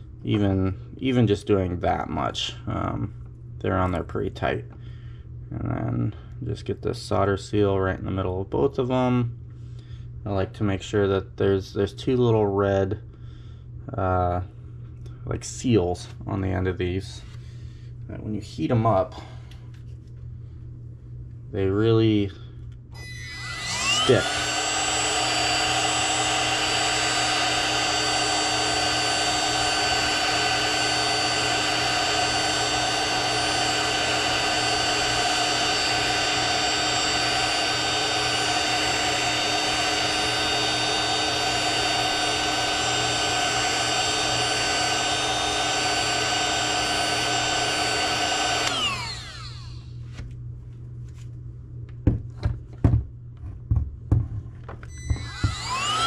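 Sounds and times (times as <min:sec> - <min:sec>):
fan winding down: 0:22.9 - 0:50.0, 0:54.8 - 0:56.0
heat gun running: 0:23.0 - 0:50.0, 0:54.8 - 0:56.0.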